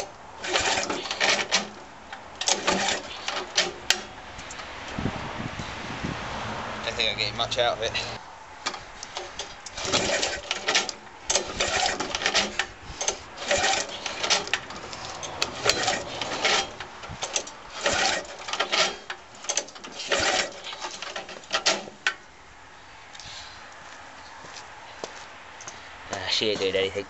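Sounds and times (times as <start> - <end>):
lawnmower recoil starter pulls: 0.0 - 4.7, 8.6 - 22.2.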